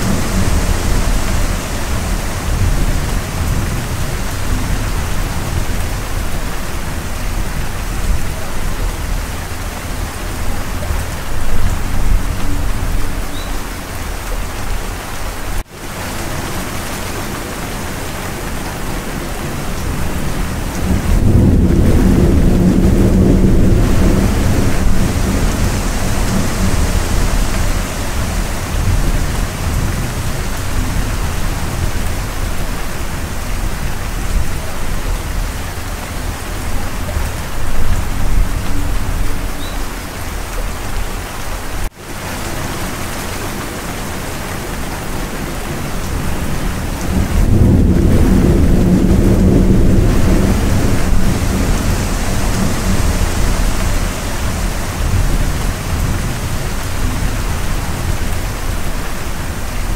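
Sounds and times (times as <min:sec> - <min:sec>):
low rolling thunder: 0:00.0 - 0:13.4, 0:16.3 - 0:41.1, 0:42.9 - 0:59.9
heavy rain: 0:00.0 - 0:59.9.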